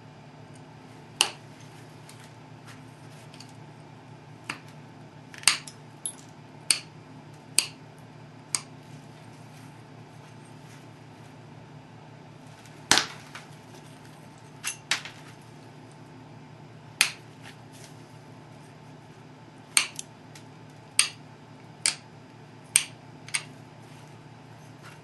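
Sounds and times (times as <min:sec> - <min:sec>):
low steady hum: 0:00.0 - 0:25.0
stone flakes snapping off: 0:12.9 - 0:13.5.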